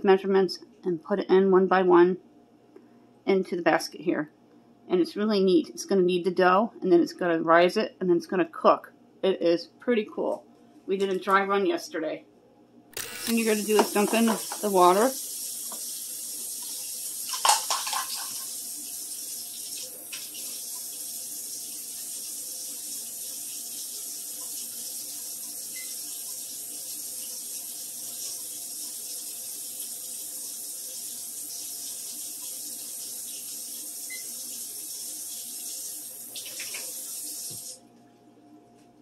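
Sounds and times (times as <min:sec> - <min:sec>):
running water hiss: 0:13.3 - 0:37.8
plastic cups clattering: 0:17.3 - 0:18.4.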